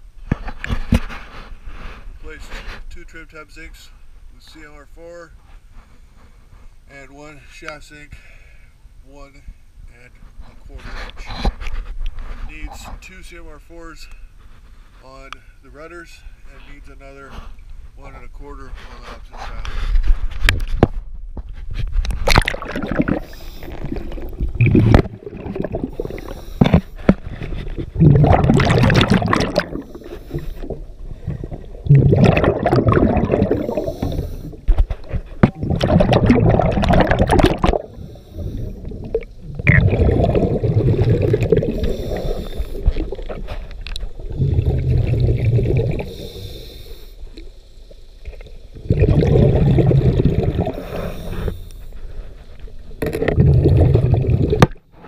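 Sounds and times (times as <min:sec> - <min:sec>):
underwater regulator bubbles: 0:22.1 - 0:46.6, 0:48.2 - 0:51.7, 0:53.0 - 0:54.8.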